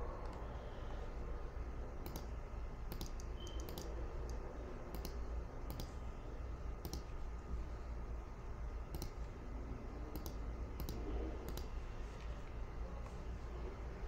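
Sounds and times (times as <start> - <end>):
low steady hum: 0.0 - 14.0
computer mouse clicking: 2.0 - 2.3, 2.9 - 6.0, 6.8 - 7.1, 8.9 - 9.4, 10.1 - 11.7.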